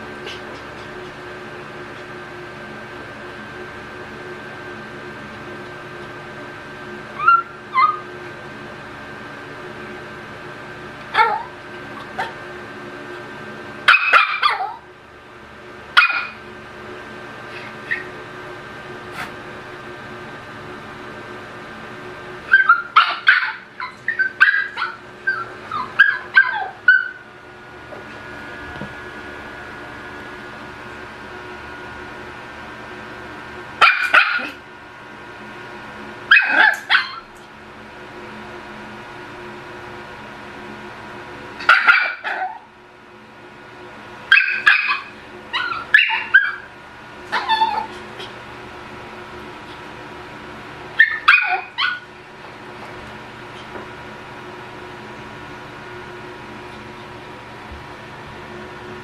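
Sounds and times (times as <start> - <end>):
puppy yipping and whining: 7.1 - 8.1, 11.1 - 12.4, 13.9 - 14.9, 16.0 - 16.4, 17.5 - 18.2, 22.5 - 27.3, 33.8 - 34.6, 36.3 - 37.3, 41.6 - 42.7, 44.3 - 48.4, 51.0 - 52.1.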